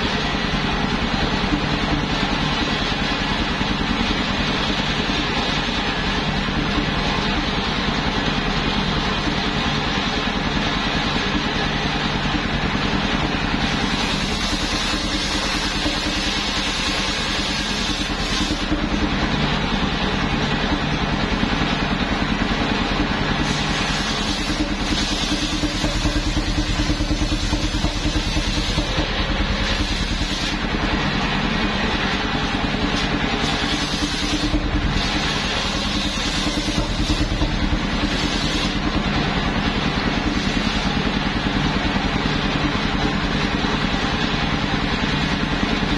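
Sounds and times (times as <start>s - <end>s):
circular sawmill running: 0.0s - 45.9s
saw blade ripping planks: 32.9s - 37.3s.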